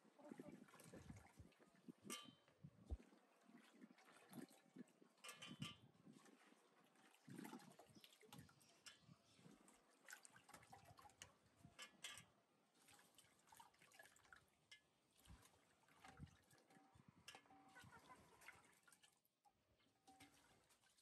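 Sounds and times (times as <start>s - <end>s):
water splashing in metal basin: 0.3s - 19.2s, 19.8s - 21.0s.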